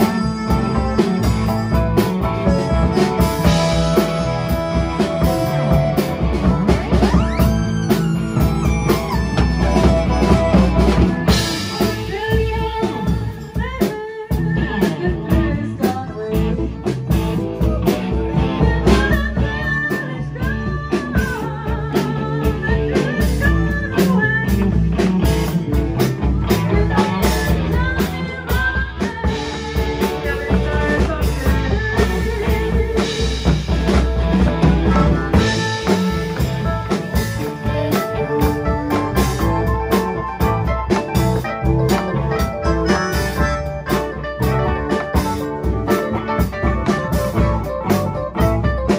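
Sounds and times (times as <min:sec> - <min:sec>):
heavy bass line: 0:00.0 - 0:13.5, 0:29.3 - 0:48.9
live blues-rock band playing: 0:00.0 - 0:48.9.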